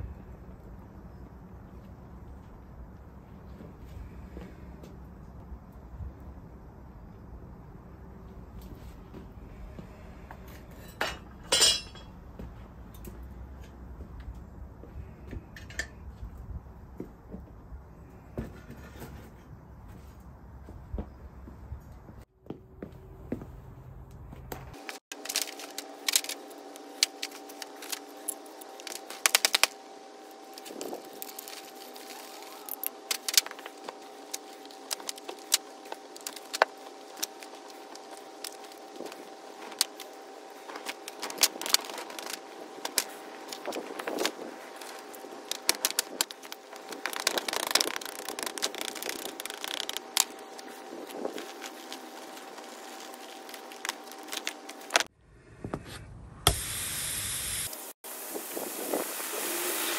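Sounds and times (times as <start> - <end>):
sand moulds crackling and rattling: 24.2 - 55.1.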